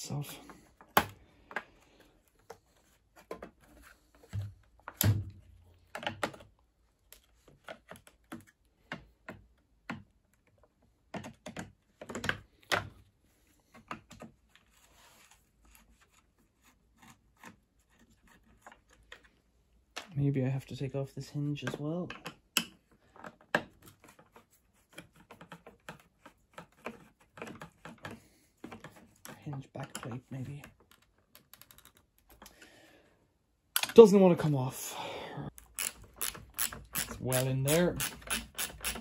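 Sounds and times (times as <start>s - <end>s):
plastic parts clicking and knocking: 0.6s - 14.6s, 21.6s - 32.7s, 35.5s - 39.0s.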